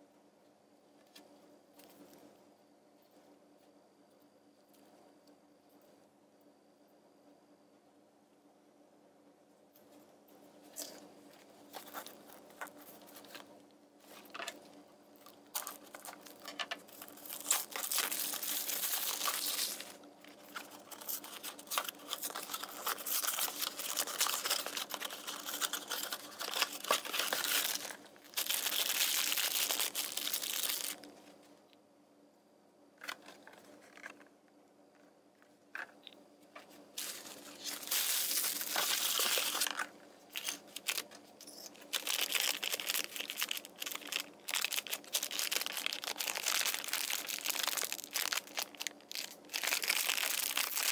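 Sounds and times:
foil packaging crinkling: 11.6 - 14.6, 15.2 - 31.2, 37.0 - 50.9.

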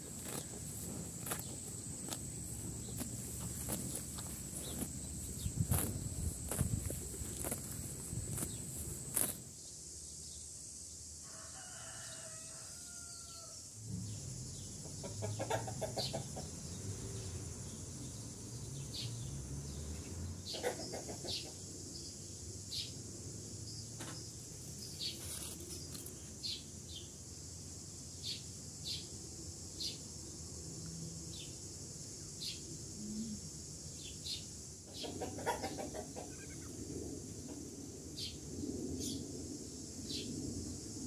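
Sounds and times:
cow tearing grass: 0.0 - 9.5
high insect drone: 0.0 - 20.5, 21.3 - 41.0
rooster crowing: 11.2 - 13.6
hens clucking: 15.0 - 16.5, 20.5 - 21.6, 34.9 - 36.8.

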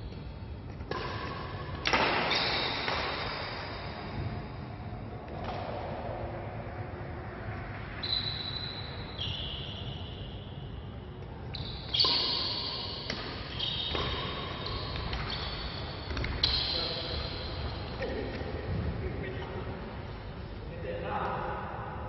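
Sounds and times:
rackets striking shuttlecock: 0.7 - 4.3, 5.2 - 6.1, 11.2 - 18.6
shoes squeaking on court floor: 11.4 - 18.5.

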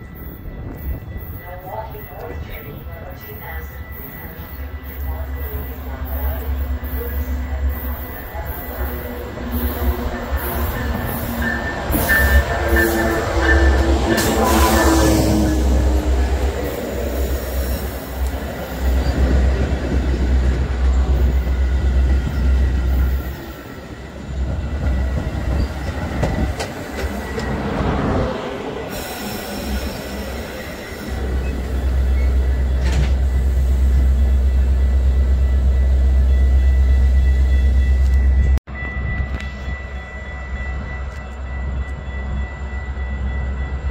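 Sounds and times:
train wheels on rails rumbling: 4.1 - 36.4.

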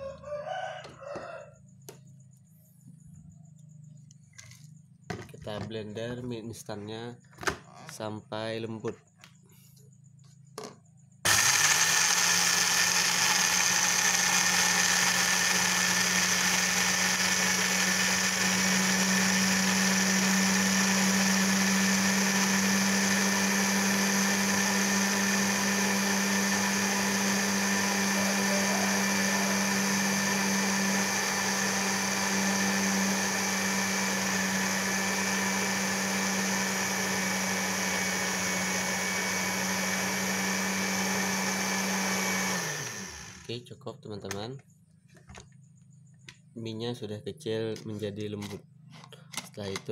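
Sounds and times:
blender motor grinding: 11.2 - 43.6.

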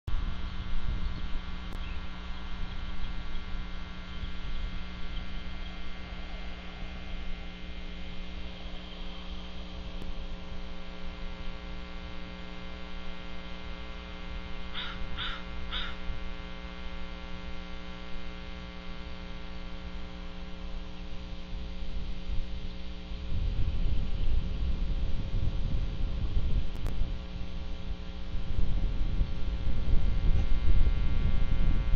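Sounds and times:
steady electrical hum: 0.0 - 31.9
short bird calls: 14.7 - 16.0.

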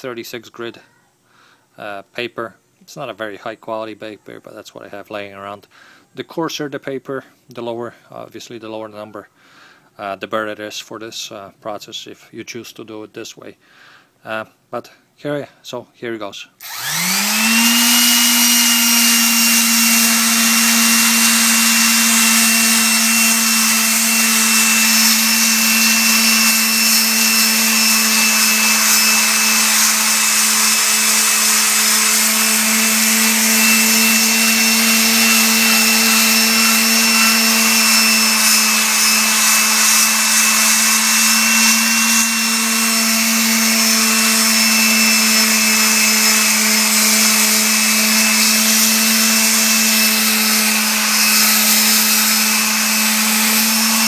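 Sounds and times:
electric sander on metal: 16.6 - 54.0.

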